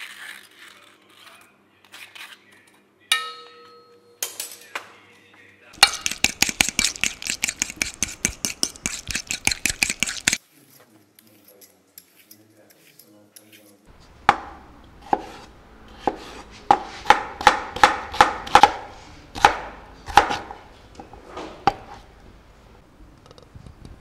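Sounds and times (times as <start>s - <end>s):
mashing taps and scrapes in bowl: 5.8s - 10.4s
utensil clinking steel bowl: 5.8s - 10.4s.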